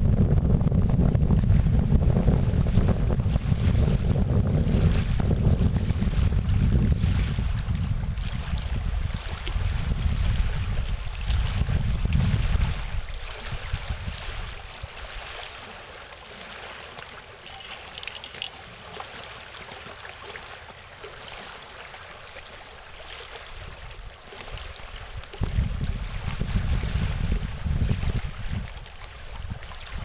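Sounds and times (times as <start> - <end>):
wind buffeting microphone: 0.0 - 15.4, 23.6 - 30.0
waves lapping on gravel shore: 8.2 - 30.0.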